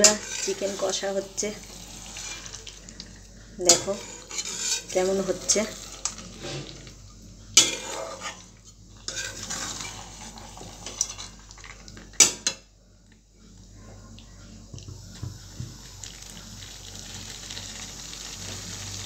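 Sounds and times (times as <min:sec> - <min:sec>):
metal spatula scraping a metal pan: 0:00.0 - 0:02.6, 0:03.6 - 0:06.9, 0:07.6 - 0:11.4.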